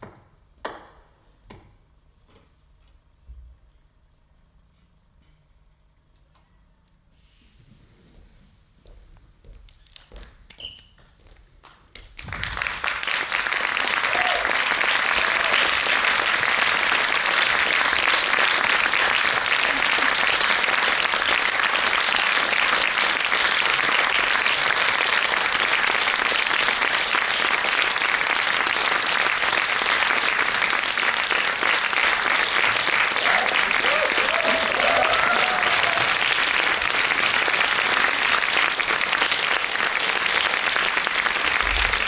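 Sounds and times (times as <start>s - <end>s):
audience applauding: 11.9s - 42.0s.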